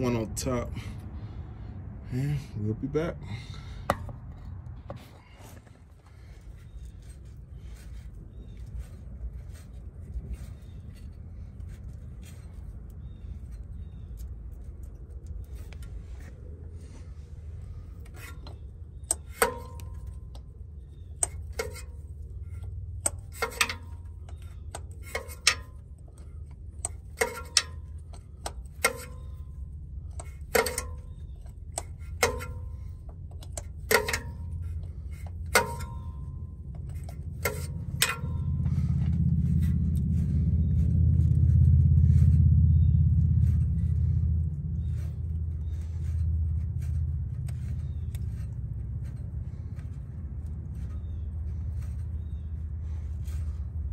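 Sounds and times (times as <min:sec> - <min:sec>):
low rumble: 0:00.0 - 0:23.3, 0:27.8 - 0:53.9
steady low hum: 0:00.0 - 0:53.9
wrench clinking on metal bolts: 0:18.0 - 0:20.5, 0:21.1 - 0:39.6.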